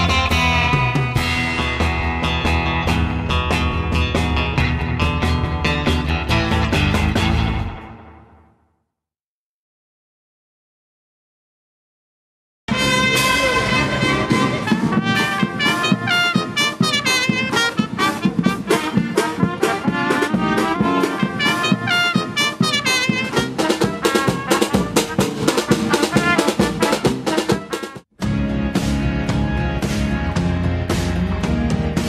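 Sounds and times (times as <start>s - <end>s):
trumpets: 0.0s - 1.3s, 12.7s - 28.0s
drums: 0.0s - 8.2s, 12.7s - 32.0s.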